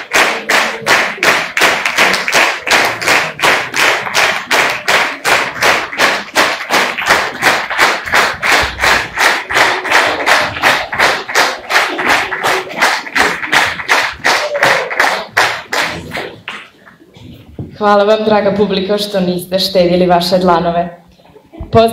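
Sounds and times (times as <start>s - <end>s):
audience clapping in unison: 0.0s - 17.1s.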